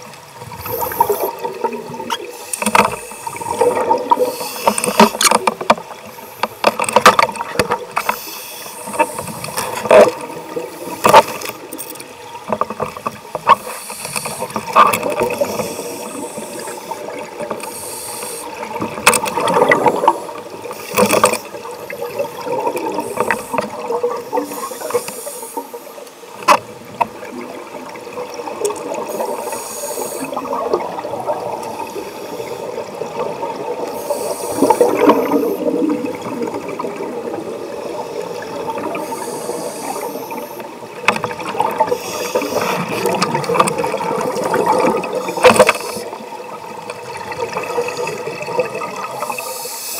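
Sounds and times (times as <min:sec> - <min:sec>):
exhaled air bubbling: 0:00.0 - 0:06.2, 0:18.4 - 0:25.3, 0:26.7 - 0:49.6
watery hiss of regulator breathing: 0:00.5 - 0:01.5, 0:02.2 - 0:06.9, 0:07.9 - 0:09.8, 0:10.5 - 0:12.0, 0:13.6 - 0:18.8, 0:20.0 - 0:26.1, 0:28.8 - 0:30.8, 0:31.6 - 0:33.2, 0:33.8 - 0:36.6, 0:37.8 - 0:40.8, 0:41.8 - 0:43.2, 0:44.4 - 0:46.4, 0:49.0 - 0:49.9.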